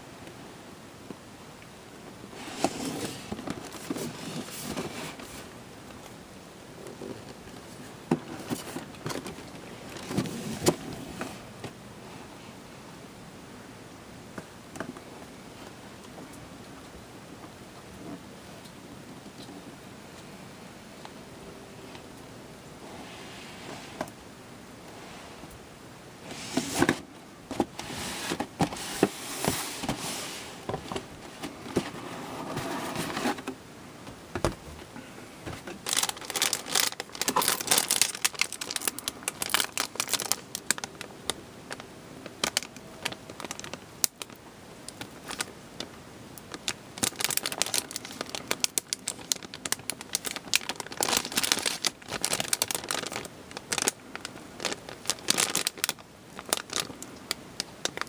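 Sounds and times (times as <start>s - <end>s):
plastic bags crinkling: 2.4s - 5.5s, 8.2s - 10.8s, 35.6s - 58.0s.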